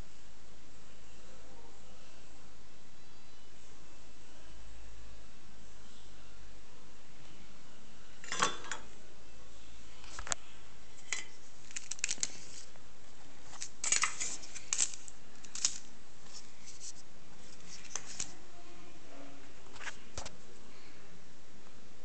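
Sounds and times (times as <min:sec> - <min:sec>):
small items clicking and tapping: 0:11.0 - 0:12.7, 0:13.5 - 0:15.9.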